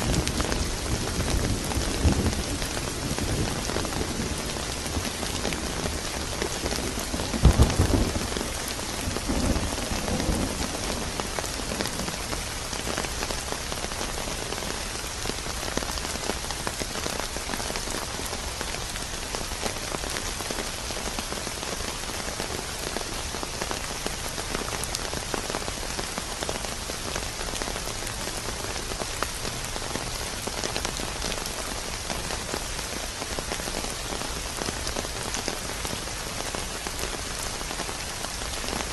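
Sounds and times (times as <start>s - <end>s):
steady rain: 0.0s - 38.9s
thunder rumble: 6.8s - 12.5s.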